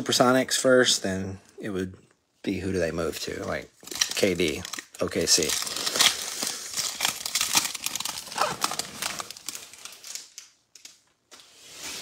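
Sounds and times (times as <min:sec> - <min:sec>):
foil wrapper crinkling: 0:03.2 - 0:11.2.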